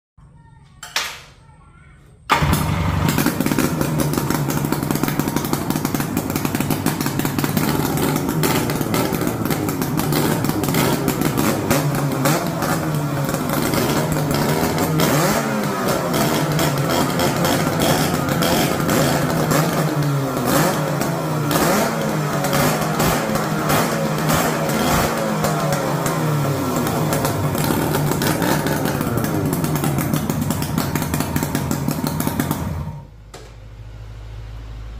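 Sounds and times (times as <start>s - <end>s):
two-stroke engine revving: 2.3s - 33.1s.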